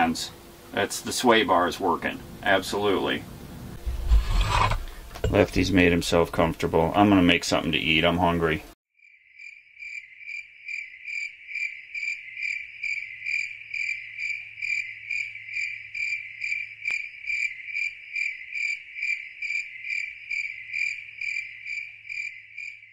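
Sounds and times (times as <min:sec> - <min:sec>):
cricket chirping: 0:09.0 - 0:22.9.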